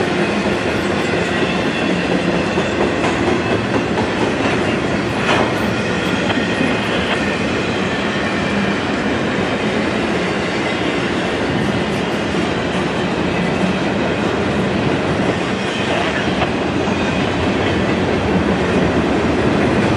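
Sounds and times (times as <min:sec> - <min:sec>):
train wheels rumbling on rail: 0:00.0 - 0:19.9
clacking over rail joints: 0:02.1 - 0:07.3.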